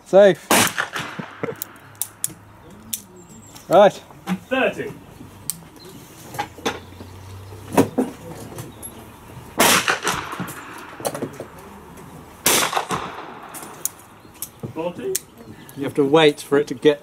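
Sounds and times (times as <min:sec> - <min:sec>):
revolver shots echoing: 0:00.5 - 0:01.5, 0:09.6 - 0:11.0, 0:12.4 - 0:13.9.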